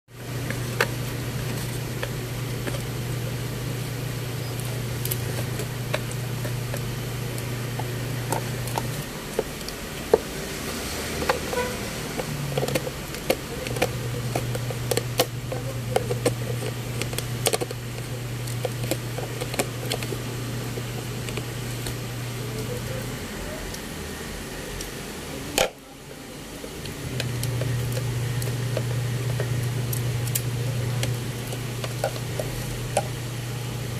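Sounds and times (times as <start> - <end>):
low machine hum: 0.1 - 33.9
dog gnawing a horn chew: 0.5 - 22.0.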